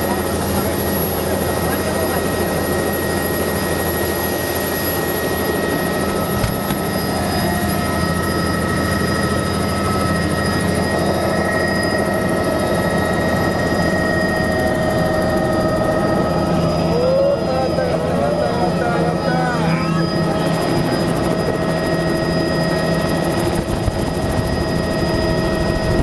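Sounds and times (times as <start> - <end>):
helicopter engine whine: 0.0 - 26.0
helicopter rotor chop: 0.0 - 26.0.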